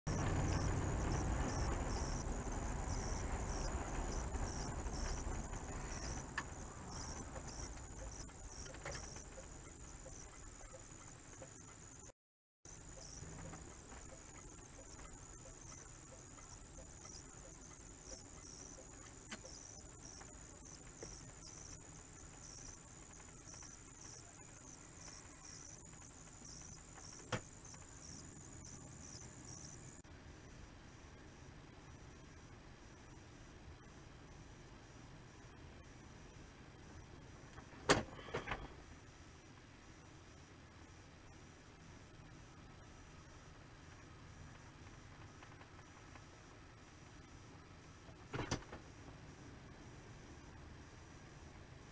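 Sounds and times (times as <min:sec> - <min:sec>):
car road and engine rumble: 0:00.1 - 0:11.9.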